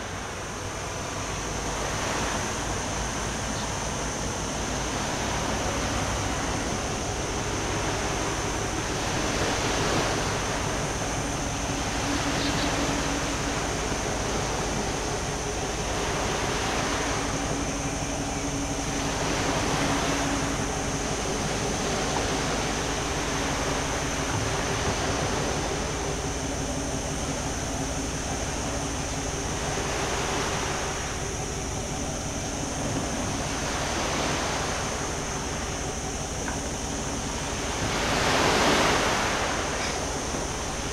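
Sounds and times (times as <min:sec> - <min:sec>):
faint low engine hum: 0:00.0 - 0:40.9
waves washing against rocks: 0:00.0 - 0:40.9.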